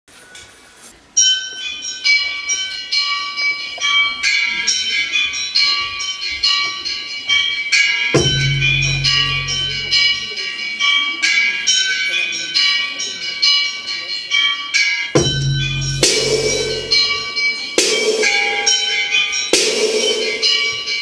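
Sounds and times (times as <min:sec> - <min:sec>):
chime-like dance music: 0:01.2 - 0:21.0
deep low note: 0:08.2 - 0:10.2, 0:15.2 - 0:17.3.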